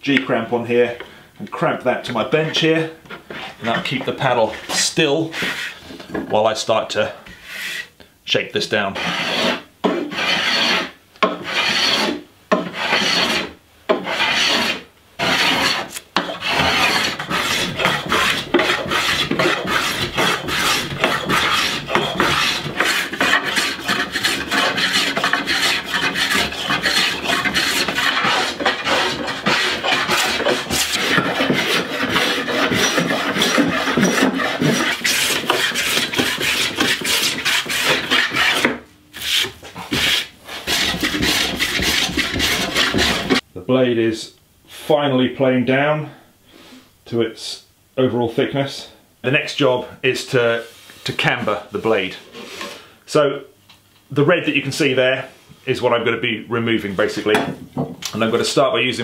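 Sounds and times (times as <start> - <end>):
hand plane shaving wood: 2.5 - 5.8, 9.0 - 43.4.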